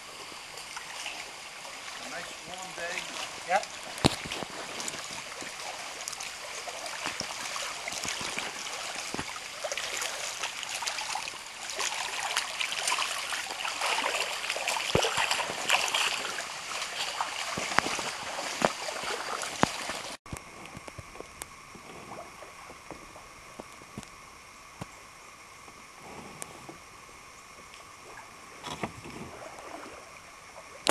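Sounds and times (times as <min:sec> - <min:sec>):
flowing water: 0:00.0 - 0:30.9
faint water drips: 0:00.5 - 0:20.2
feet splashing through creek: 0:00.6 - 0:20.2.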